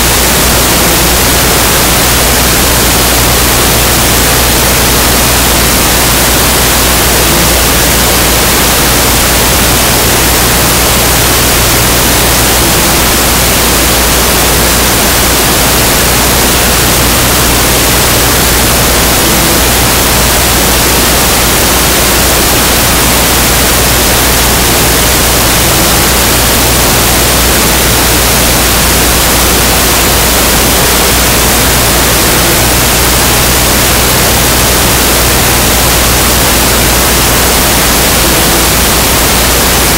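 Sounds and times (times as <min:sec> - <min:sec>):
loud static hiss: 0:00.0 - 0:39.9.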